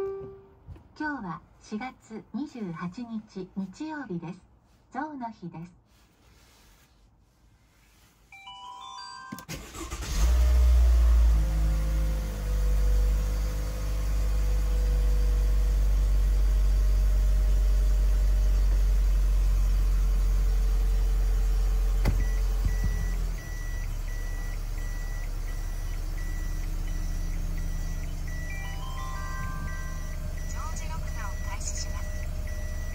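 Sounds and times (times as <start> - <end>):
car engine starting and idling: 9.4 - 32.9
reverse warning beeper: 22.0 - 32.9
rising electronic tones: 27.1 - 32.9.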